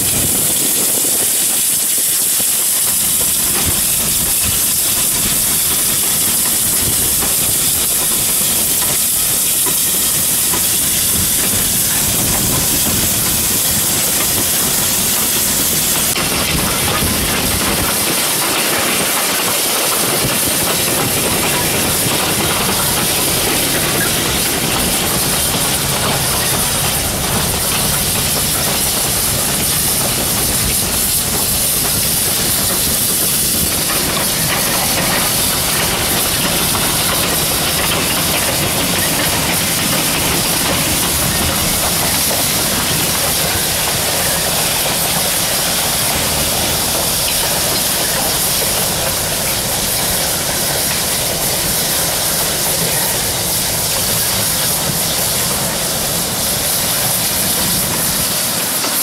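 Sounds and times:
steam locomotive hissing: 0.0s - 59.0s.

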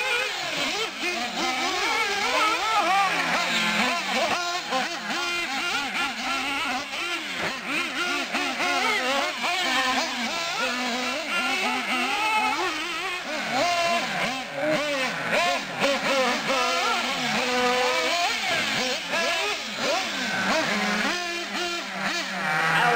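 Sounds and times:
rc car motors revving: 0.0s - 22.9s.

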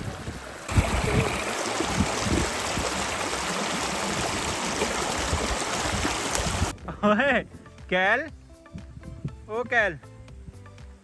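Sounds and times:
shallow stream running over rocks: 0.0s - 6.7s.

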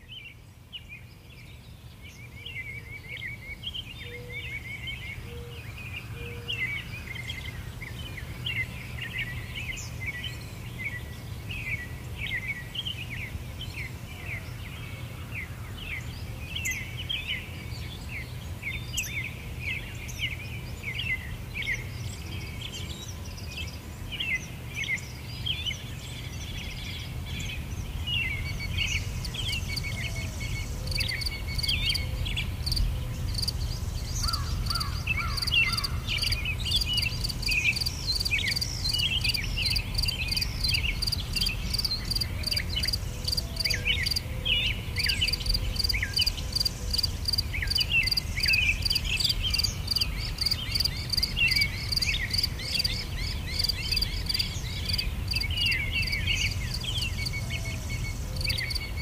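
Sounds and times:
small birds chirping: 0.0s - 59.0s
insects trilling: 28.3s - 44.3s, 45.0s - 52.9s, 53.6s - 57.4s, 58.0s - 59.0s.

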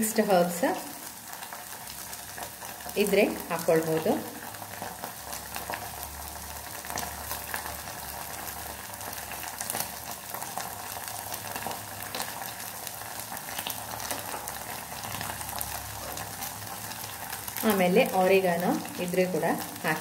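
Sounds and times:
vegetables sizzling in oil: 0.0s - 20.0s
small crackles: 6.8s - 20.0s.

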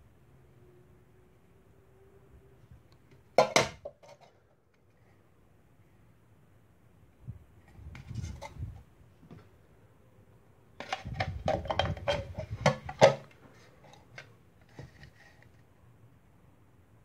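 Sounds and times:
metal tin clicks and knocks: 3.4s - 4.2s, 10.8s - 13.3s
tin cans clinking and scraping: 3.4s - 4.4s, 10.8s - 15.4s.

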